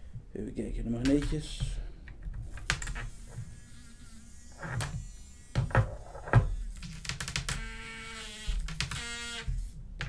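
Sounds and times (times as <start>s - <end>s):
electronic alarm buzz: 7.5s - 9.5s.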